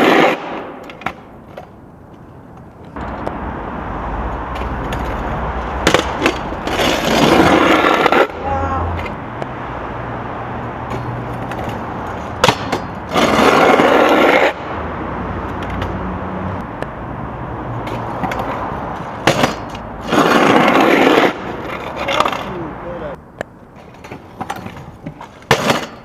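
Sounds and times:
scooter scraping on concrete: 0.0 - 16.7, 17.7 - 26.0
scooter wheels rolling on concrete: 0.0 - 26.0.

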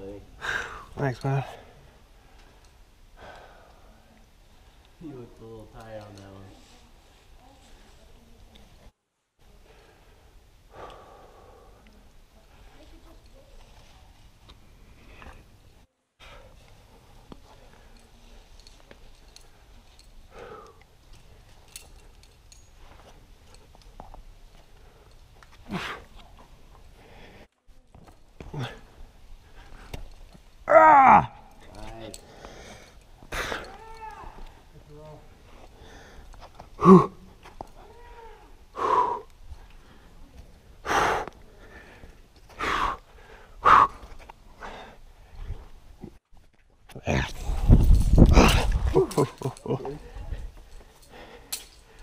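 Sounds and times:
climbing clicks and scuffs on rock: 2.3 - 6.6, 16.6 - 30.7, 31.5 - 38.5, 43.9 - 52.0
short breath: 9.7 - 11.8
hard breaths of effort: 9.8 - 11.9, 38.7 - 40.2, 40.8 - 45.5, 50.0 - 52.0
voiced grunt: 36.8 - 37.2.

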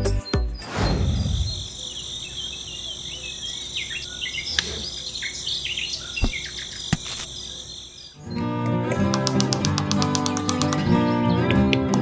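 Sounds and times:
bird chirps: 0.0 - 8.4
insects chirring: 0.7 - 8.4
sharp clicks: 9.0 - 10.9.

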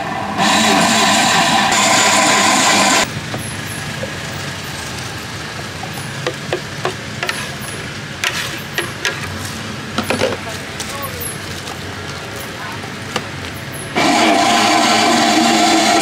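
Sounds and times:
blender motor running: 0.0 - 3.1, 14.0 - 16.0.

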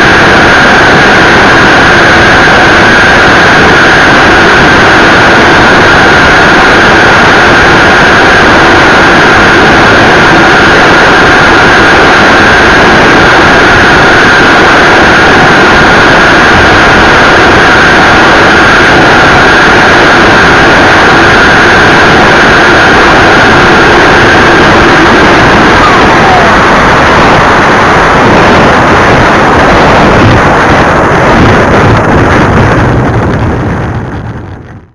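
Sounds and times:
jet turbine whine: 0.0 - 34.9
rush of air noise: 0.0 - 34.9.

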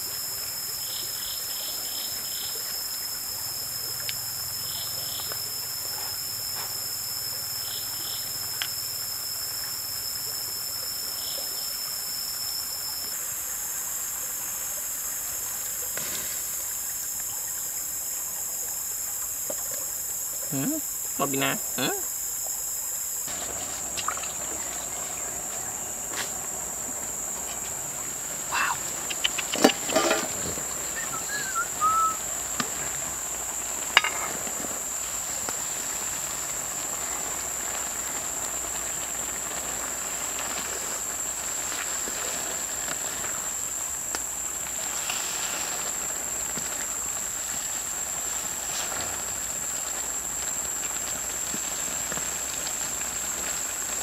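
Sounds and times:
insect chorus: 0.0 - 54.0.

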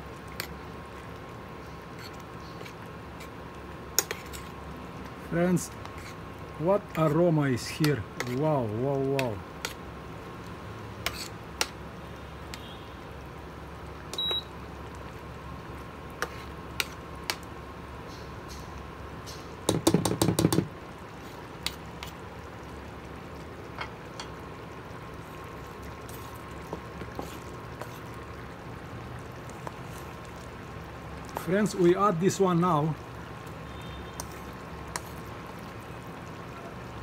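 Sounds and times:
sauce simmering in a pan: 0.0 - 37.0
metal spoon scraping a pan: 4.0 - 4.6, 5.8 - 6.2, 11.0 - 11.7.

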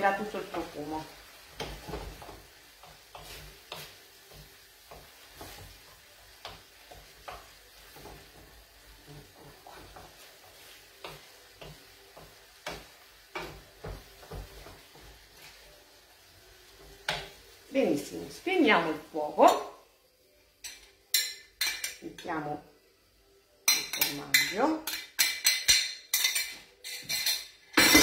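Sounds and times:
faint sizzle: 0.0 - 28.0
wooden spoon knocking a pan: 11.0 - 15.2.

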